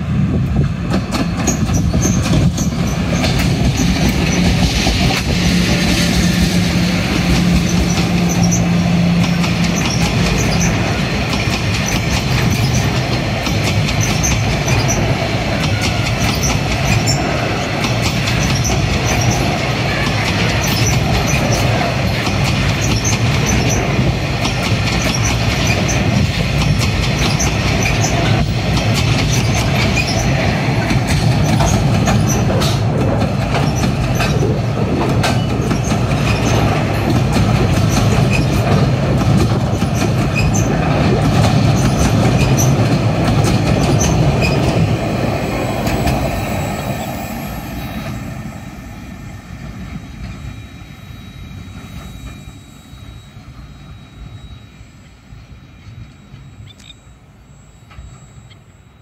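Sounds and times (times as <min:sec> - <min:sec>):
steel wheels rumbling on rail: 0:00.0 - 0:59.0
faint high wheel squeal: 0:07.5 - 0:11.0, 0:43.8 - 0:59.0.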